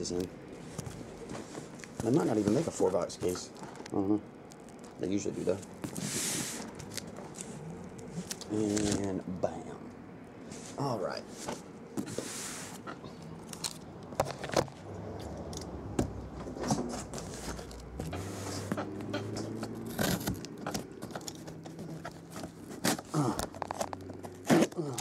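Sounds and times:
low steady hum: 0.0 - 25.0
cardboard boxes scraping and knocking: 1.0 - 3.5, 16.4 - 24.8.

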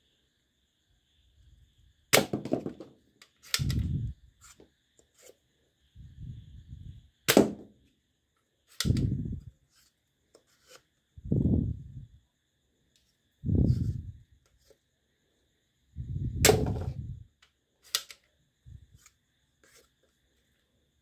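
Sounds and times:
sharp plastic clacks: 3.2 - 3.9, 8.7 - 9.2, 17.4 - 18.3
small plastic clicks: 3.2 - 3.9, 8.7 - 9.2, 17.4 - 18.3.

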